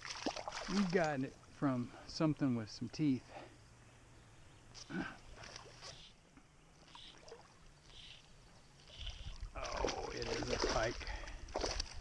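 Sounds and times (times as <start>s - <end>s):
soft small splashes: 0.0s - 1.2s, 5.2s - 6.1s, 6.7s - 12.0s
water lapping: 0.0s - 1.6s, 4.8s - 12.0s.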